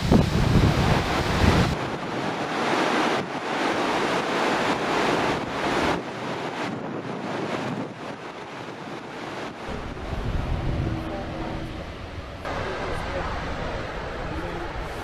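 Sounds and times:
wind on microphone: 0.0s - 15.0s
waterfall rushing: 8.2s - 15.0s.

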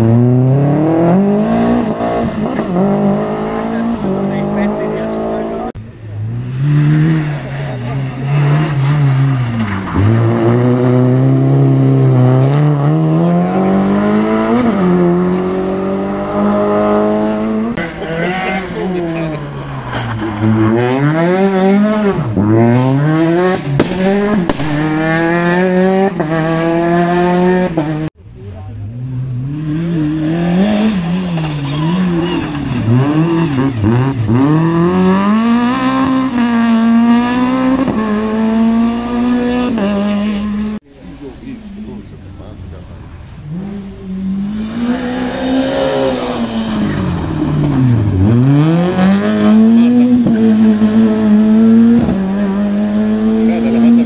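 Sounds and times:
rally car engines revving: 0.0s - 54.0s.

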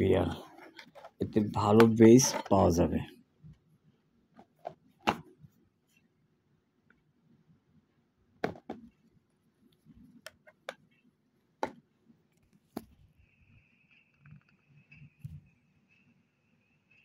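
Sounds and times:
clicks and taps of handling objects: 10.1s - 11.0s
faint high-pitched whine: 10.8s - 17.0s.

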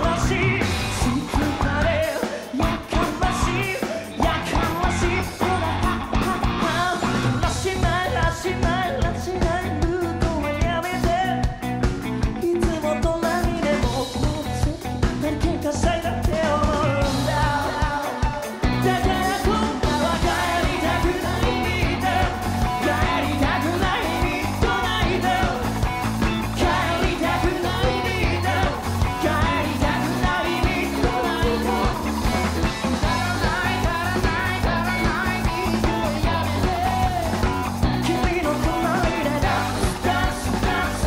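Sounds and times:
drum kit steady beat: 0.0s - 41.0s
electric bass guitar: 0.0s - 41.0s
male lead vocal: 0.0s - 41.0s.

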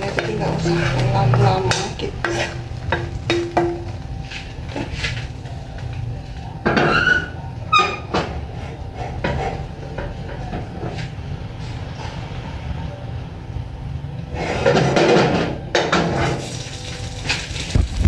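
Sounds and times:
metal spatula scraping a wok: 0.0s - 3.5s, 14.3s - 16.6s.

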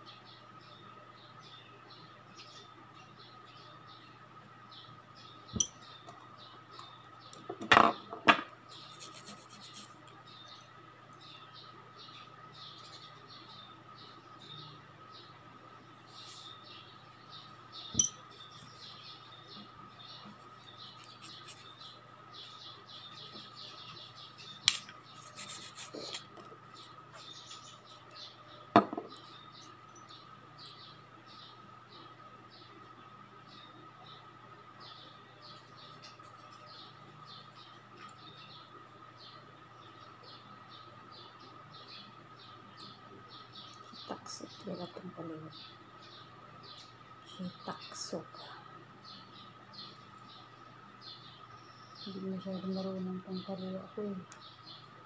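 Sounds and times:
nail file scraping: 8.7s - 10.0s, 20.9s - 21.8s, 24.7s - 26.9s
metal tools clinking: 18.0s - 18.3s.

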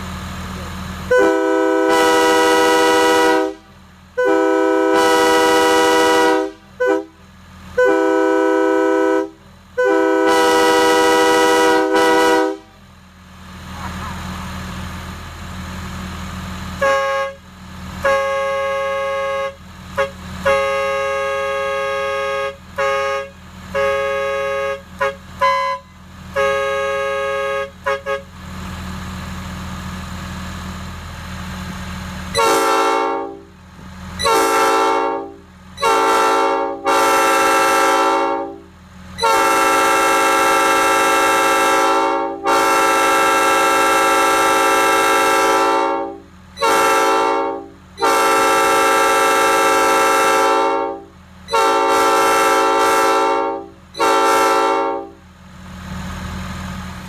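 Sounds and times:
handheld air horn blasts: 1.1s - 3.6s, 4.2s - 7.1s, 7.8s - 12.7s, 16.8s - 17.4s, 18.0s - 28.3s, 32.3s - 33.4s, 34.2s - 38.6s, 39.2s - 55.2s
locomotive air horn blasts: 1.1s - 12.8s, 16.8s - 28.4s, 32.3s - 33.6s, 34.2s - 55.3s.

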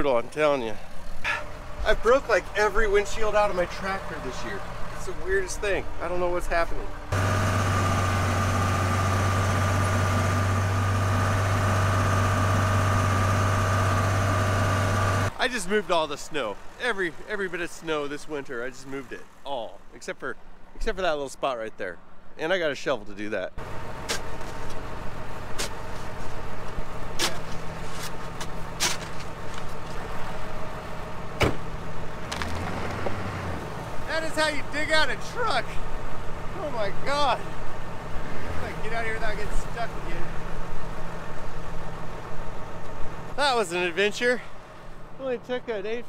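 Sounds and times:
tractor engine hum from cab: 0.4s - 15.5s, 23.6s - 45.8s
truck door shutting: 31.4s - 33.4s.

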